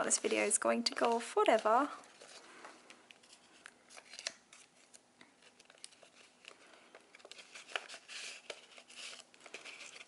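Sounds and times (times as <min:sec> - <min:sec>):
paper rustling: 0:00.0 - 0:10.0.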